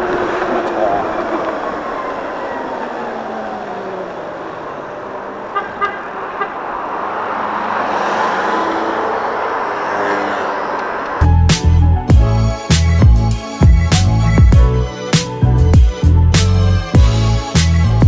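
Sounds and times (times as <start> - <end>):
wind and road noise: 0.0 - 18.0
music: 11.2 - 18.0.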